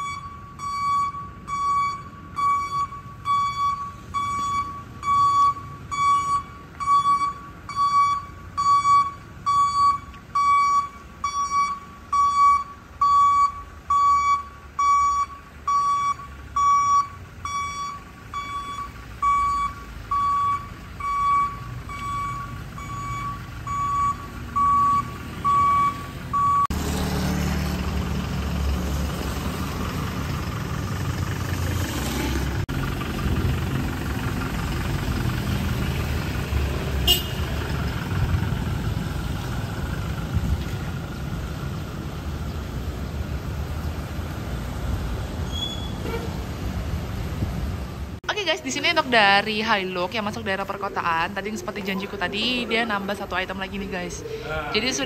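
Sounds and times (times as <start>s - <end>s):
reverse warning beeper: 0.0s - 26.8s
low vehicle engine rumble: 0.0s - 55.0s.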